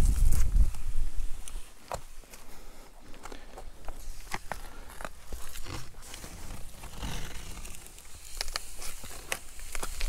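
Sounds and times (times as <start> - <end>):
footsteps scuffing on rock: 1.5 - 6.5.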